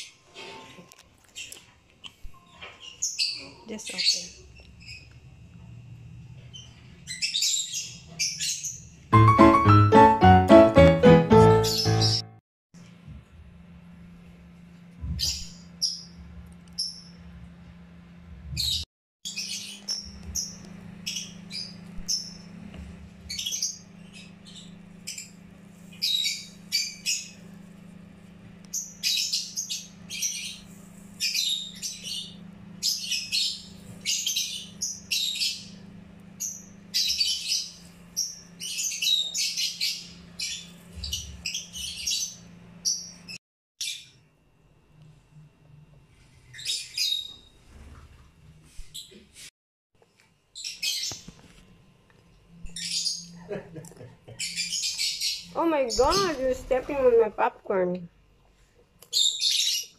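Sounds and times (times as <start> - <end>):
bird chirping: 6.5 - 12.4.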